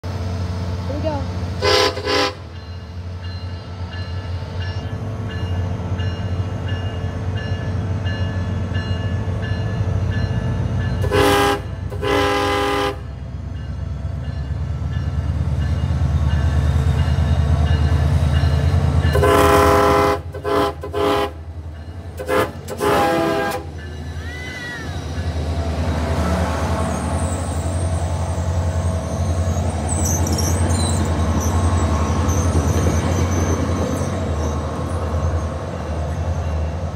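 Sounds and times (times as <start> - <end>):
locomotive engine rumble: 0.0 - 36.9
train wheel noise: 0.0 - 36.9
train horn blasts: 1.6 - 2.5, 11.0 - 13.2, 19.1 - 21.5, 22.2 - 23.9
high squeal: 26.7 - 34.6.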